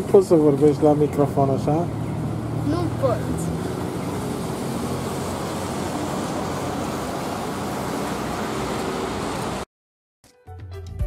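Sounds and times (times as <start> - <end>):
traffic on wet street: 0.0 - 9.7
music: 10.2 - 11.0.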